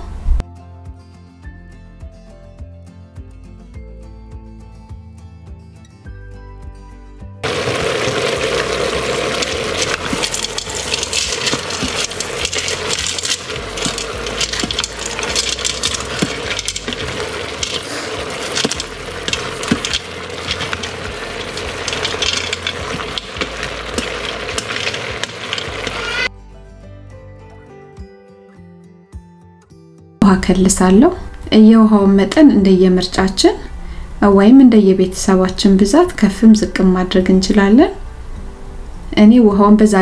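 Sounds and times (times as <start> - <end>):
dry pasta clattering: 7.4 - 26.3
spatula scraping metal pot: 8.1 - 26.3.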